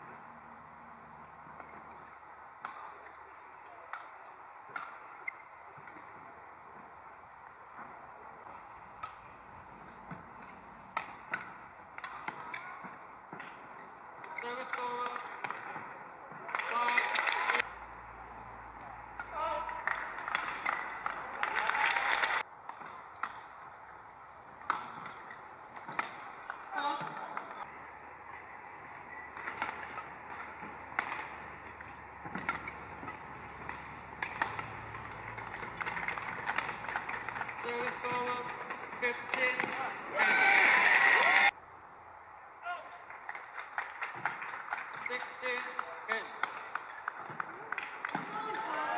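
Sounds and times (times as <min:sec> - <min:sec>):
arena background noise: 0:00.0 - 0:48.9
rackets hitting shuttlecock: 0:01.4 - 0:06.9, 0:07.5 - 0:17.6, 0:18.7 - 0:27.7, 0:28.9 - 0:40.3, 0:43.1 - 0:48.9
shuttlecock and racket taps: 0:29.4 - 0:39.8.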